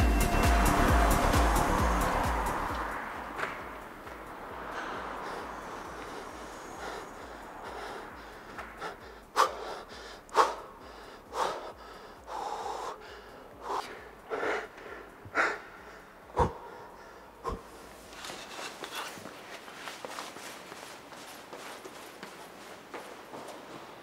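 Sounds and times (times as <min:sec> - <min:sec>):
footfalls: 0:00.0 - 0:09.6, 0:17.5 - 0:24.0
person breathing heavily: 0:04.0 - 0:19.2.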